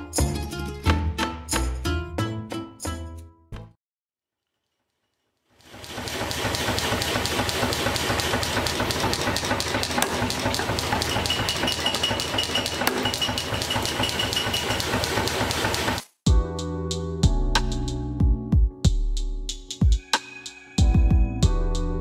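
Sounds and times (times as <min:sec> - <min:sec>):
machine clattering and hissing: 0:05.6 - 0:16.1.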